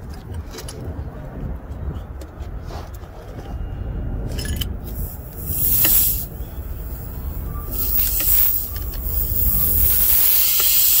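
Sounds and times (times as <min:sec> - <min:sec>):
air hissing from a tire: 0:04.8 - 0:11.0.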